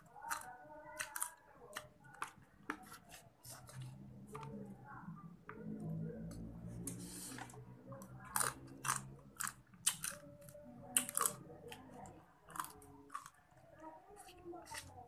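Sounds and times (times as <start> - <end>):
person chewing: 0.2 - 4.0, 6.4 - 11.4, 12.5 - 13.4.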